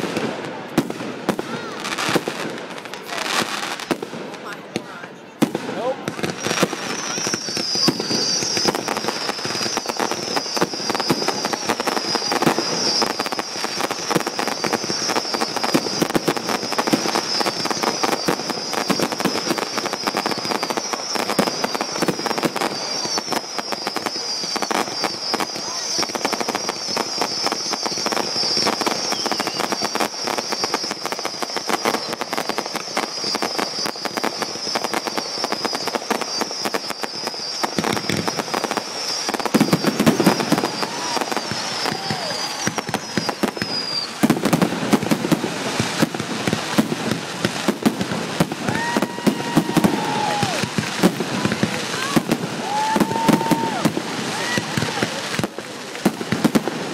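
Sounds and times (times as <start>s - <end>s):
fireworks crackling and popping: 0.0s - 56.9s
high wavering whistle: 6.4s - 37.9s, 39.0s - 44.2s.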